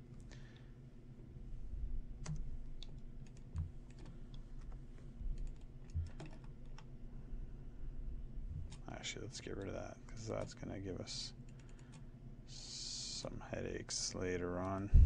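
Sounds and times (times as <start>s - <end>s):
keyboard and mouse clicking: 2.2s - 4.8s, 5.4s - 6.9s.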